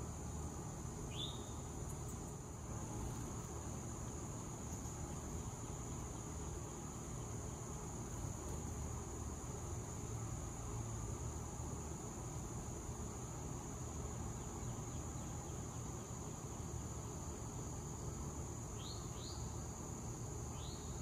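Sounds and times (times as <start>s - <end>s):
insects droning: 0.0s - 21.0s
small bird chirping: 1.1s - 3.6s.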